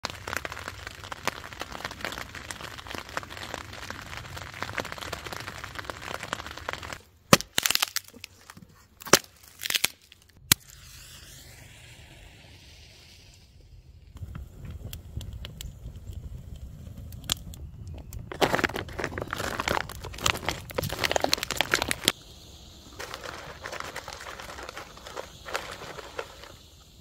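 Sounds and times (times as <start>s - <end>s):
light rain pattering on tent: 0.0s - 7.0s
dry kindling wood cracking: 0.0s - 10.5s, 14.2s - 22.2s, 22.9s - 26.7s.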